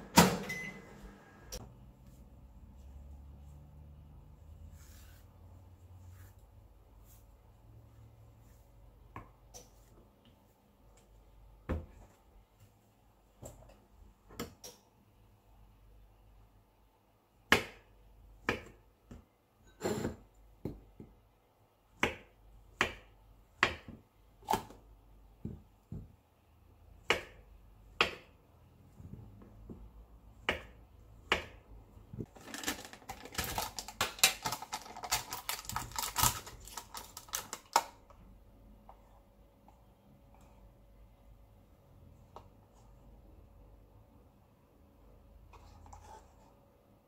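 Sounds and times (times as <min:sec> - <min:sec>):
knife chopping on plastic board: 0:17.5 - 0:19.2, 0:22.0 - 0:24.8, 0:27.0 - 0:28.4, 0:29.3 - 0:32.3.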